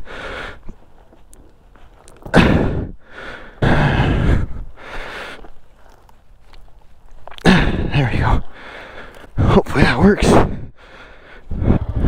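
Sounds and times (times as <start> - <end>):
person grunting: 7.4 - 8.4.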